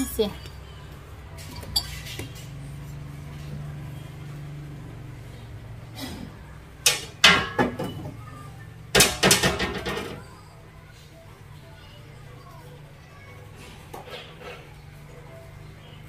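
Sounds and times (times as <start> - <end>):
trophies knocking on glass shelves: 8.9 - 10.2.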